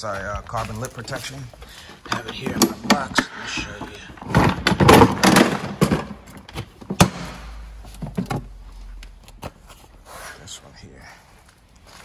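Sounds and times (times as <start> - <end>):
plastic toolbox clacks and knocks: 1.9 - 8.6.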